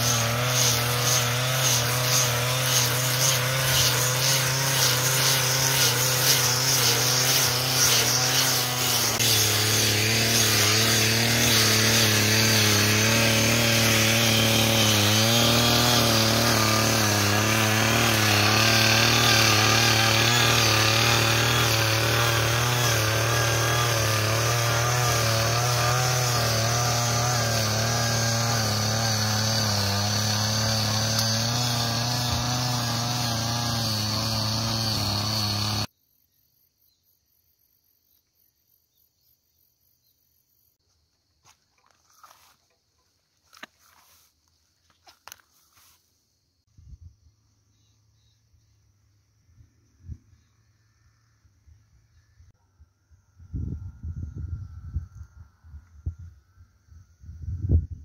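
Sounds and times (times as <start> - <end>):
brush cutter engine running: 0.0 - 35.9
cutter head cutting grass: 0.0 - 35.9.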